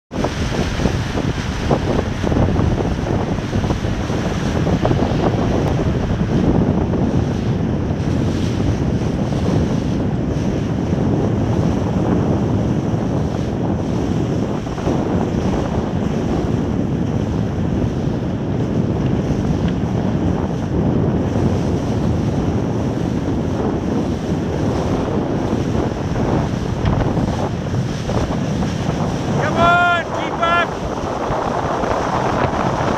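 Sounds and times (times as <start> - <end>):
water rushing and splashing: 0.1 - 10.8, 21.6 - 32.9
wind buffeting microphone: 0.1 - 32.9.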